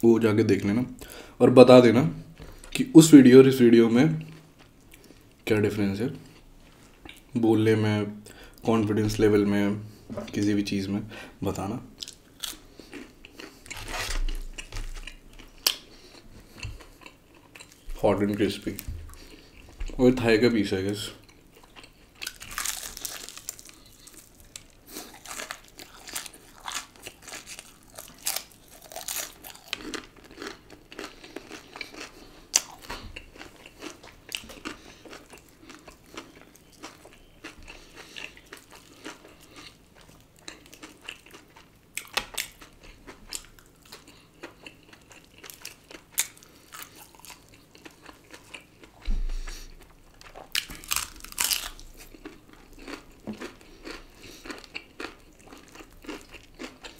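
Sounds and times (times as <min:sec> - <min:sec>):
crunching bites of fried chicken: 0:21.8 - 0:56.9.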